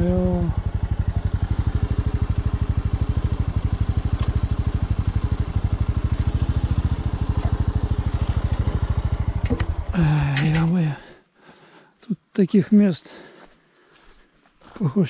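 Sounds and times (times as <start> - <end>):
motorcycle engine running: 0.0 - 11.1.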